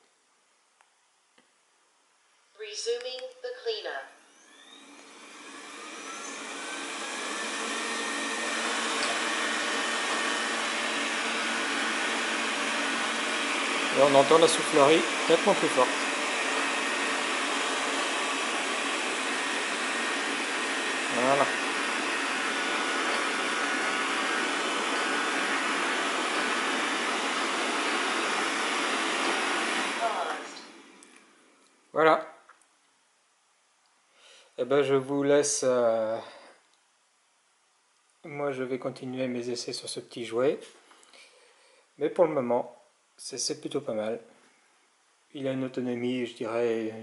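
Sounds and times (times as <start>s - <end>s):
robot vacuum fan whining: 4.2s - 31.4s.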